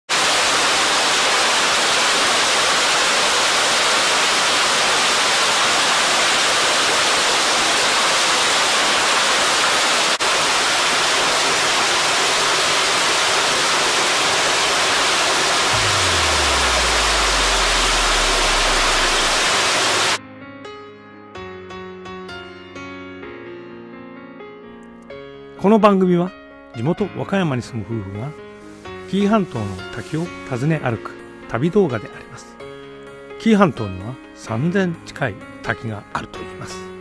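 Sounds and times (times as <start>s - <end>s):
waterfall rushing: 0.1s - 20.2s
low tone sliding down in pitch: 15.7s - 20.2s.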